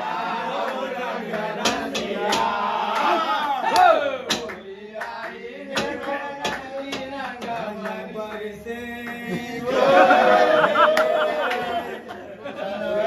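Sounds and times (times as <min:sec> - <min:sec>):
men singing and chanting: 0:00.0 - 0:13.0
loud shout: 0:02.8 - 0:04.3, 0:09.7 - 0:12.0.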